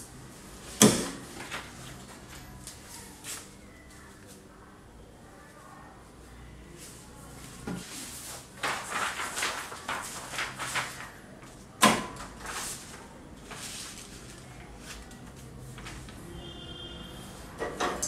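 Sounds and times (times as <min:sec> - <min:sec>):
paper rustling and shuffling: 0:00.6 - 0:04.4, 0:06.9 - 0:16.2.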